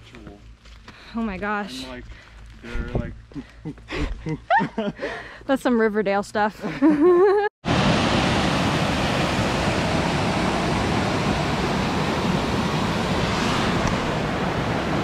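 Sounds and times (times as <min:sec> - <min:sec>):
waterfall cascading over rocks: 0:07.7 - 0:15.0.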